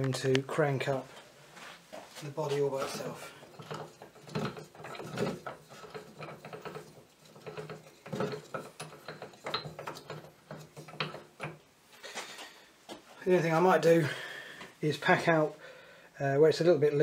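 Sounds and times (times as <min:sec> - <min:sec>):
gear wheel clicking and rattling: 0:02.9 - 0:11.6.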